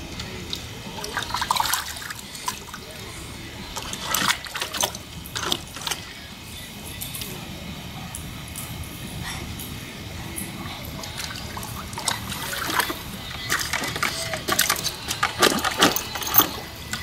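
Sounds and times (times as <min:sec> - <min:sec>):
dog splashing and lapping water: 0:00.4 - 0:03.0, 0:03.7 - 0:06.1, 0:10.7 - 0:16.5.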